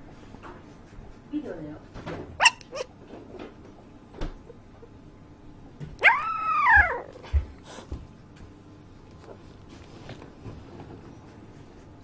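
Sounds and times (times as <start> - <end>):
puppy whining howl: 6.0 - 7.2.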